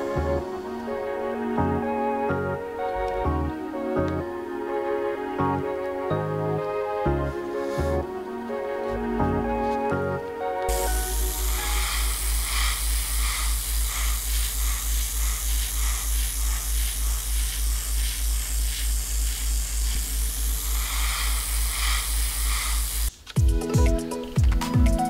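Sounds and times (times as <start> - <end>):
steady hissing: 0.0 - 5.1, 10.7 - 23.4
fast low pulsing: 10.7 - 23.1.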